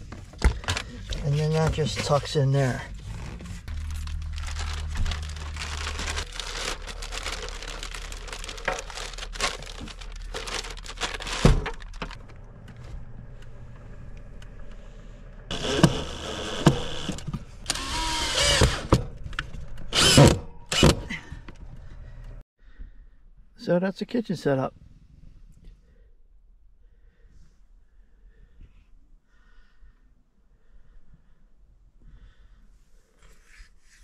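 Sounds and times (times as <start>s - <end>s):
gear rustling and clicking: 0.0s - 13.0s
scraping rustles: 0.0s - 13.1s.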